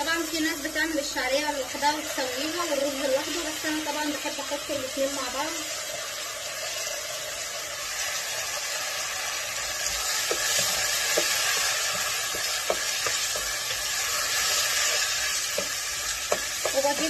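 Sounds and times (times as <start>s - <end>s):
rice sizzling in hot oil: 0.0s - 17.0s.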